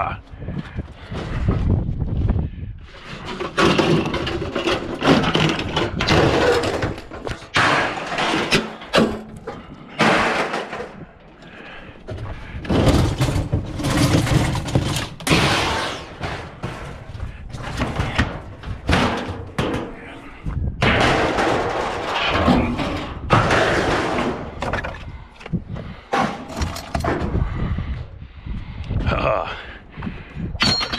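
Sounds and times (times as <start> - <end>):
metal scraping and clattering: 2.9 - 25.2, 25.9 - 27.4.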